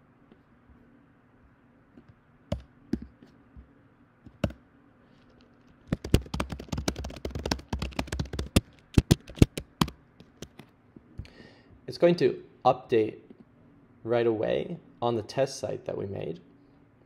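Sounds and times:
typing on computer keyboard: 0:04.3 - 0:04.6, 0:05.9 - 0:10.6.

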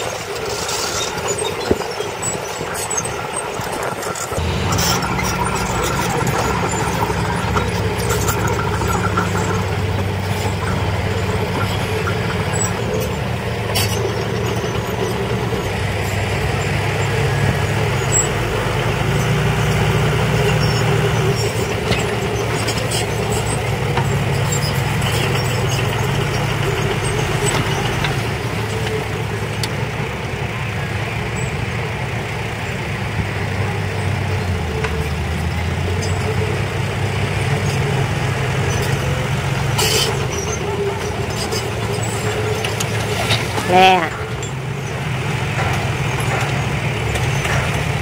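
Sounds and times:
bulldozer engine running: 0:00.0 - 0:48.0
dump truck diesel engine: 0:00.0 - 0:48.0.

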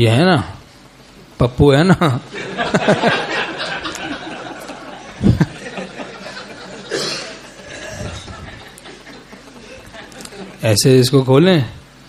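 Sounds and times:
people laughing softly: 0:02.3 - 0:10.6.

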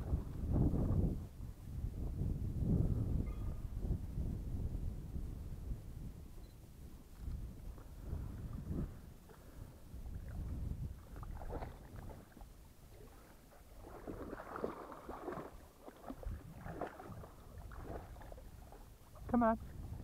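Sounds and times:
dogs splashing in water: 0:11.0 - 0:19.3.

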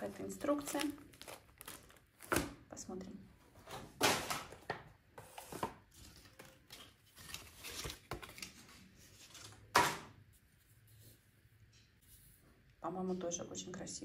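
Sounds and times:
packaging rustling: 0:00.0 - 0:02.6, 0:04.2 - 0:09.7.

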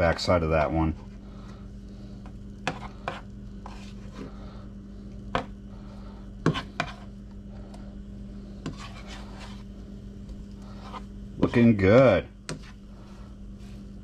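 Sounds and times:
steady low hum: 0:00.0 - 0:14.0
spatula scraping frying pan: 0:02.6 - 0:04.4, 0:06.4 - 0:07.2, 0:08.6 - 0:09.7, 0:10.6 - 0:12.9.

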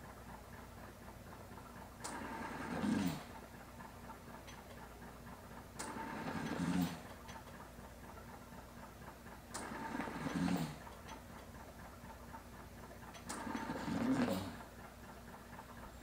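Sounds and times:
ventilator airy breaths: 0:05.8 - 0:07.1, 0:09.6 - 0:11.0, 0:13.3 - 0:14.8.

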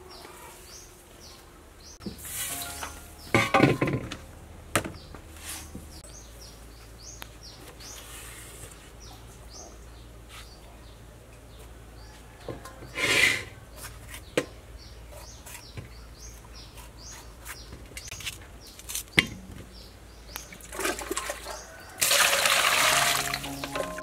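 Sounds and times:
water splashing in a bowl: 0:20.5 - 0:24.0.

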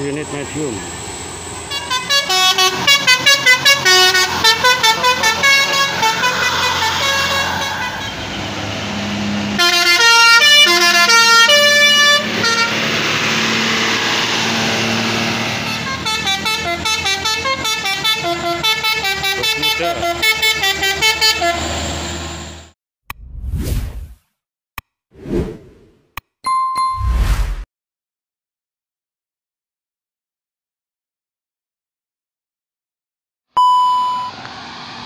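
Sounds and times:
bus engine noise: 0:00.0 - 0:22.7, 0:34.0 - 0:35.0
multi-tone bus air horns: 0:01.7 - 0:22.7.

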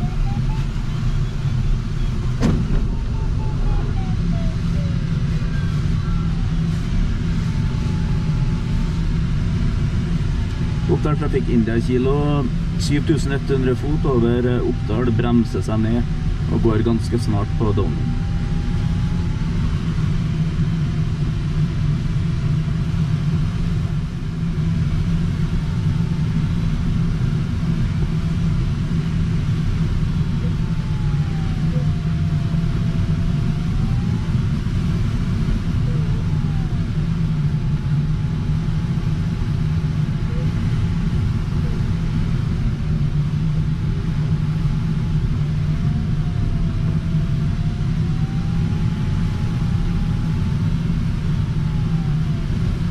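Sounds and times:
variometer tone sliding in pitch: 0:00.0 - 0:19.9
wind rushing over cockpit: 0:00.0 - 0:52.9.

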